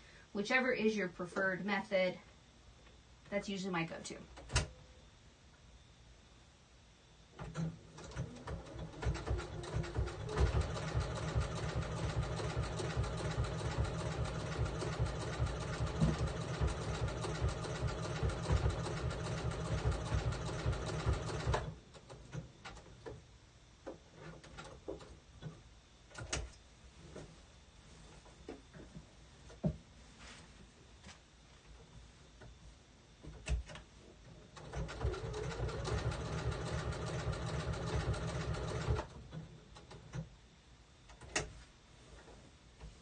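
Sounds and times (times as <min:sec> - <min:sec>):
sewing machine stitching: 0:07.4 - 0:22.2, 0:34.6 - 0:39.2.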